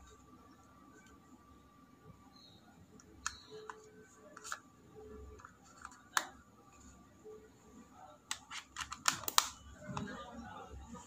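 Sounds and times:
plastic phone parts clicking: 3.0s - 3.8s, 4.4s - 4.6s, 5.3s - 6.4s, 8.3s - 10.1s.

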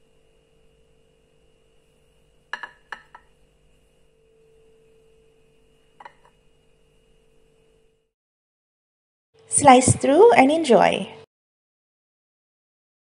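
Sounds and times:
faint steady hum: 0.0s - 8.1s
glass clinking on plate: 2.6s - 3.2s.

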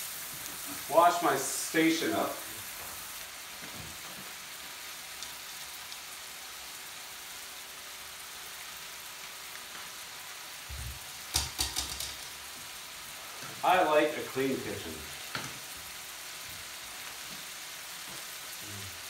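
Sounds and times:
fish frying in butter: 0.0s - 13.3s
knocks and clatter: 10.7s - 12.4s.

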